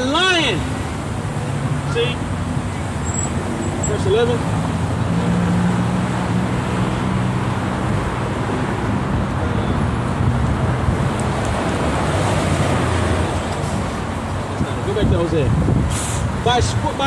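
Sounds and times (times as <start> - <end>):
passing cars: 0.0 - 17.0.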